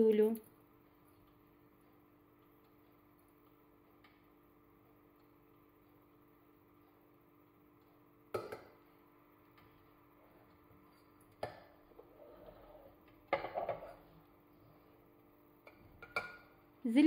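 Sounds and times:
spatula scraping through grains: 12.0 - 13.0.

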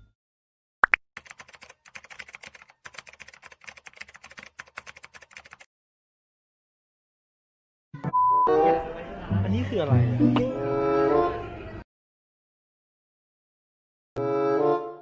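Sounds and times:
computer keyboard typing: 1.2 - 5.7.

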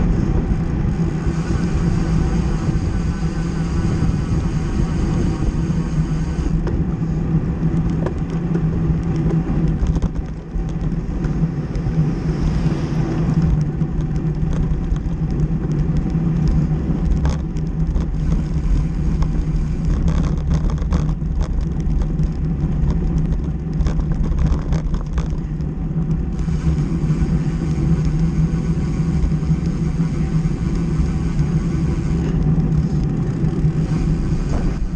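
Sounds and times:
tyres humming on asphalt: 0.0 - 34.9
wind rushing over microphone: 0.0 - 34.9
scattered clicks: 7.6 - 12.0, 13.2 - 26.4.

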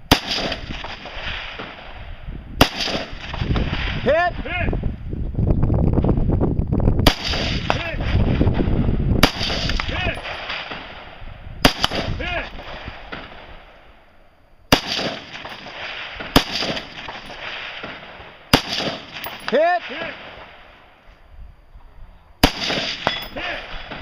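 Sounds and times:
rifle shots with echo: 0.0 - 4.1, 7.0 - 14.1, 14.7 - 20.9, 22.4 - 24.0.

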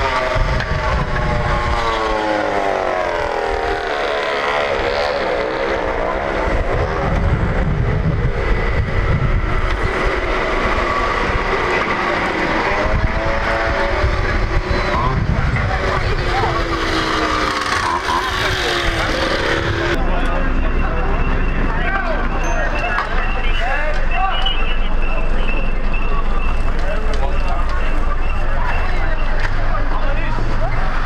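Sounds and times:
motor drone: 0.0 - 20.5
low rumble: 5.9 - 17.4.

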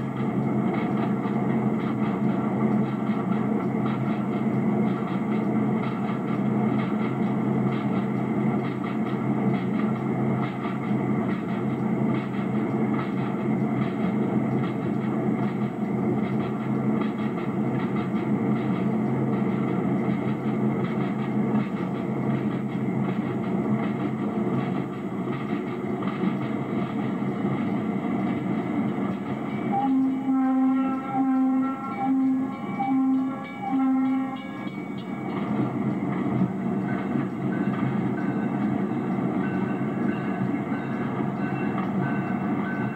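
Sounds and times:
diesel locomotive engine drone: 0.0 - 42.9
locomotive horn blasts: 29.7 - 34.6.

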